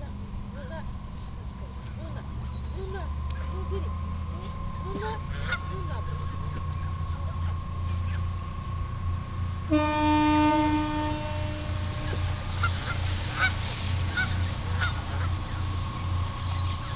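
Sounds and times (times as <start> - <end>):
steady low hum: 0.0 - 16.9
geese honking: 3.3 - 16.9
long horn blast: 4.6 - 16.9.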